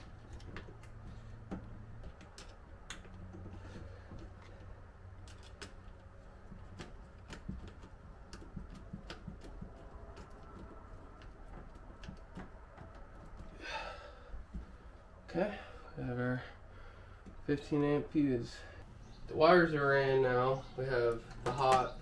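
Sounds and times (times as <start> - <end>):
hands handling wires: 0.0 - 15.1, 21.0 - 22.0.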